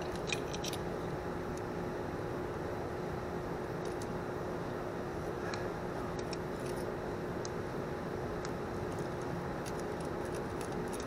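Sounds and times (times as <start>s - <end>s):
small metal parts clicking: 0.0s - 0.8s, 8.9s - 11.0s
steady background hum: 0.0s - 11.0s.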